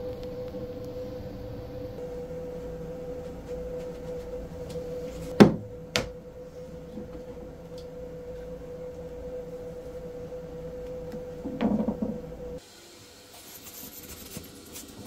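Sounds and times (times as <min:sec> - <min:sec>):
steady motor hum: 0:00.0 - 0:15.0.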